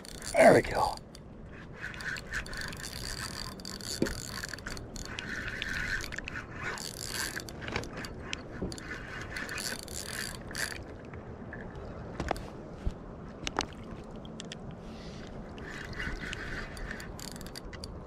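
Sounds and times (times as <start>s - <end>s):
fishing reel whirring and clicking: 0.0s - 11.0s, 15.5s - 18.0s.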